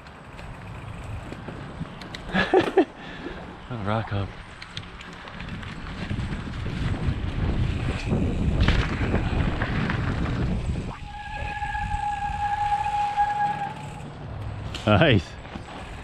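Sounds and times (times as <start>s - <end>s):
bike rumbling and rattling on rocks: 0.0s - 3.6s, 4.6s - 10.9s
disc brake squeal: 10.9s - 14.2s.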